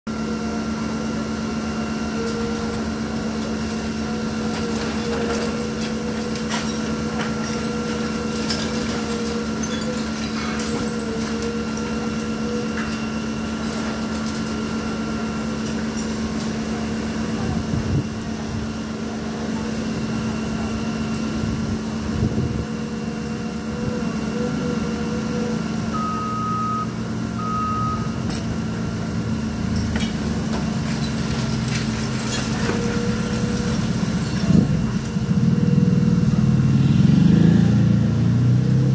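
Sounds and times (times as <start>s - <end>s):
heavy diesel machinery running: 0.1s - 38.9s
reversing alarm: 22.8s - 29.5s
short beeps: 25.9s - 28.2s.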